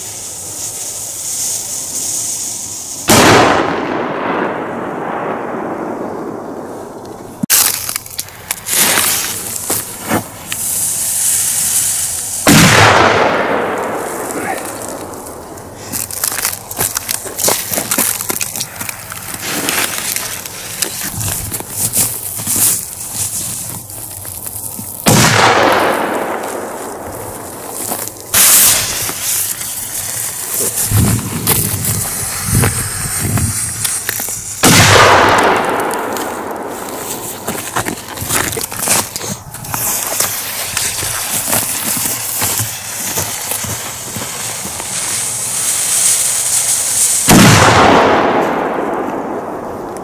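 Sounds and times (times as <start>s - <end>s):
firecracker fuse hissing: 0.0s - 4.1s, 6.6s - 49.8s
firecracker bang: 3.0s - 7.8s, 8.6s - 16.2s, 25.0s - 39.0s, 45.6s - 50.0s.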